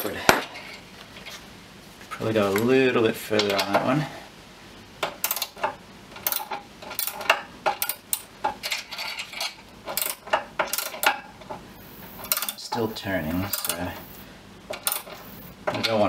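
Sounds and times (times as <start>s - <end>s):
ratchet wrench clicking: 13.4s - 14.1s.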